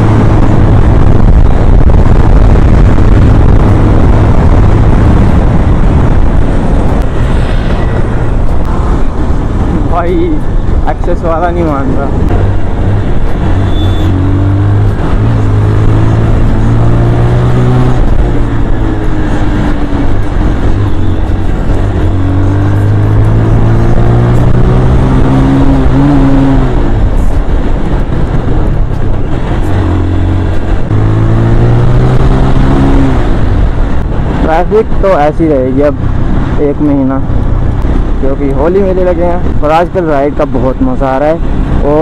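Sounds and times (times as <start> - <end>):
wind and road noise: 0.0 - 42.0.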